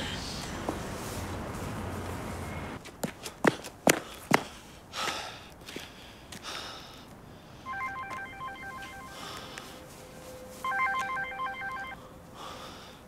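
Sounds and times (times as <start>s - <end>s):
mobile phone ringtone beeping: 7.7s - 9.4s, 10.6s - 12.0s.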